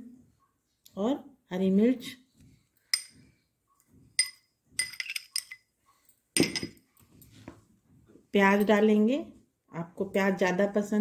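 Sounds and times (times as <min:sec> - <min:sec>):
utensils clinking on plate: 0:04.2 - 0:05.7, 0:06.4 - 0:06.8.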